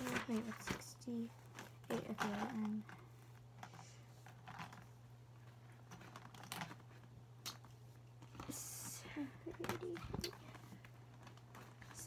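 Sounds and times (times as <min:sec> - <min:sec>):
markers clicking and rustling: 0:00.0 - 0:08.6
steady low hum: 0:00.0 - 0:12.0.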